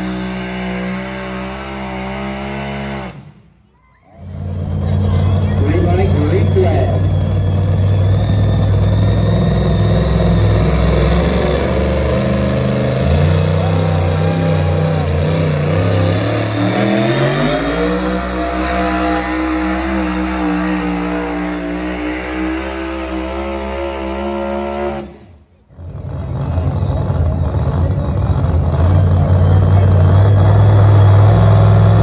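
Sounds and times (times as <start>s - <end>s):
engine running hard under load: 4.2s - 22.8s.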